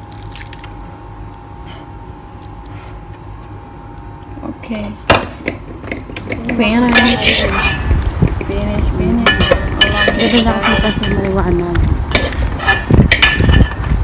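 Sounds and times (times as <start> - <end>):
low hum: 0.0 - 14.0
woman's voice: 4.4 - 5.1, 6.3 - 7.6, 8.4 - 12.0.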